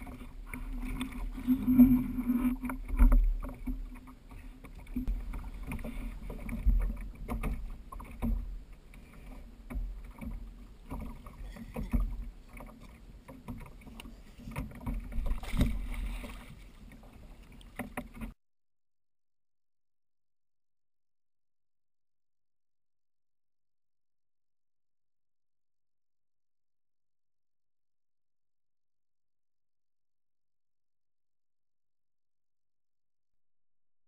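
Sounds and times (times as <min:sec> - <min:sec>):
water sloshing around kayak: 0:00.0 - 0:18.4.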